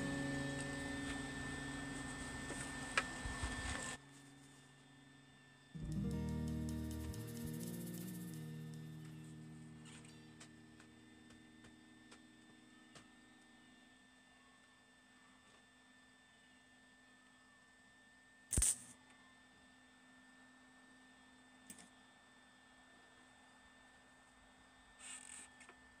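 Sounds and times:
welder humming: 0.0s - 13.9s
welding arc crackle: 18.5s - 18.8s.

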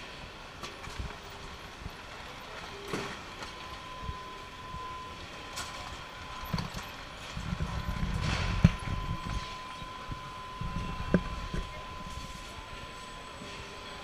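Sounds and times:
factory background noise: 0.0s - 14.0s
steady high tone: 2.3s - 14.0s.

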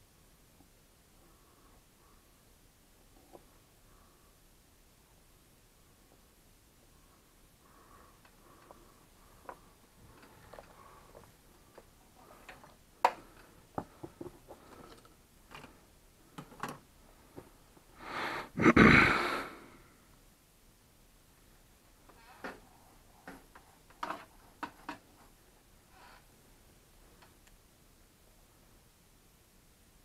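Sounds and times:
person exhaling breath: 18.0s - 20.0s.

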